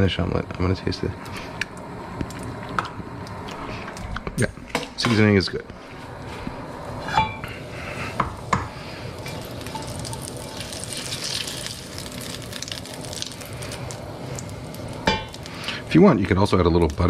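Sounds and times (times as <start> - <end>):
oil sizzling in a frying pan: 8.1 - 17.0.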